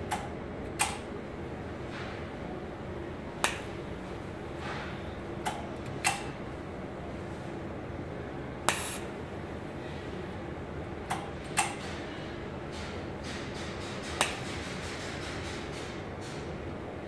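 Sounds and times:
steady electrical hum: 0.0 - 13.2
welding machine sharp snaps: 0.1 - 1.0, 8.7 - 9.0.

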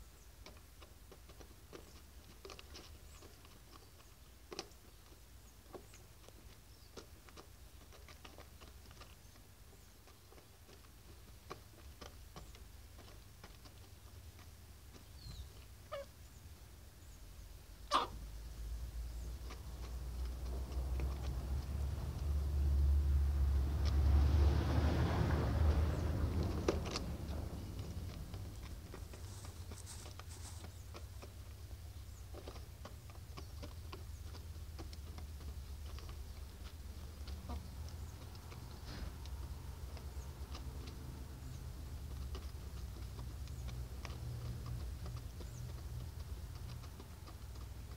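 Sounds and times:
hen clucking: 11.7 - 16.6, 17.7 - 18.4, 25.3 - 47.9
hen chirping: 14.9 - 20.0, 35.8 - 40.7
steady low rumble: 18.5 - 30.6
beak taps pecking feed: 19.2 - 47.9.

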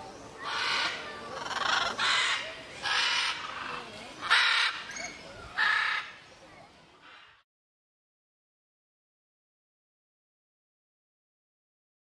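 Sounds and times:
macaws squawking: 0.4 - 5.0, 5.6 - 6.2.

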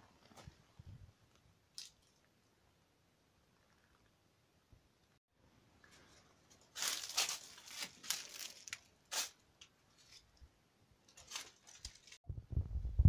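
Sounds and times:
rustling and scraping: 5.8 - 10.4, 11.1 - 12.2.

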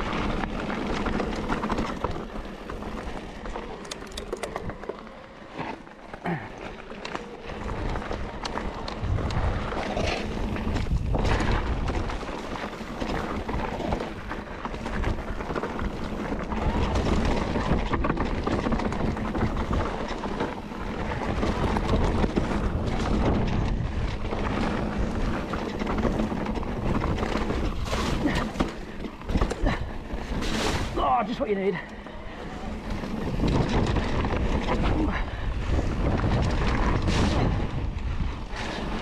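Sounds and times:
bike clattering over rough trail: 0.0 - 39.0
wind rumbling on microphone: 0.0 - 39.0.

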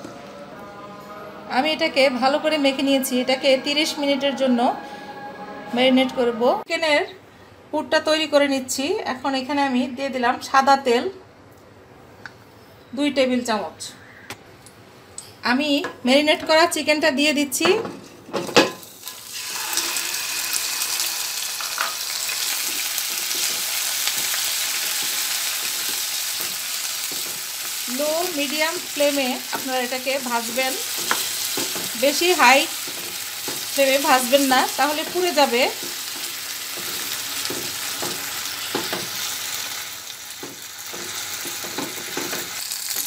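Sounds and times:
chicken sizzling in hot oil: 18.8 - 43.0.

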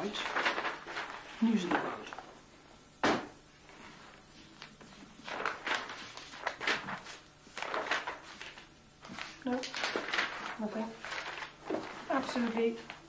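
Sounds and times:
newspaper pages rustling: 0.0 - 2.5, 3.1 - 13.0
sharp thump: 3.0 - 3.4.

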